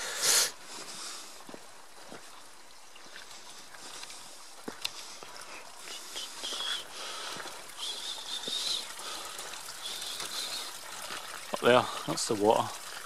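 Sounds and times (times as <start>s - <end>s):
footsteps on stony path: 0.6s - 11.4s
stream rushing: 1.8s - 13.0s
short high bird calls: 5.9s - 6.9s.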